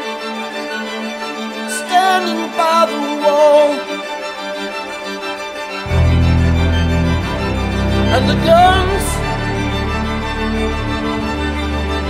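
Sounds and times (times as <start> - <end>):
organ-like keyboard chords: 5.8 - 12.0
deep bass: 5.9 - 12.0.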